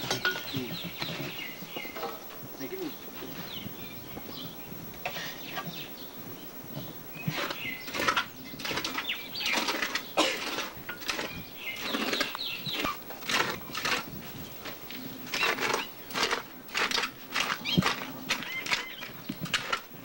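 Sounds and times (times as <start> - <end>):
rustling scraping noise: 0.0 - 5.8, 6.7 - 20.0
bird chirps: 0.0 - 10.2, 11.1 - 13.1, 17.6 - 19.4.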